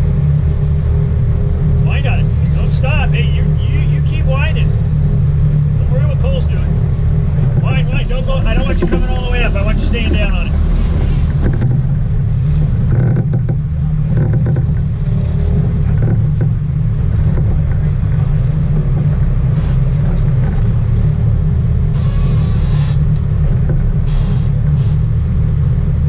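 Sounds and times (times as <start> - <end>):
boat engines rumbling: 0.0 - 26.0.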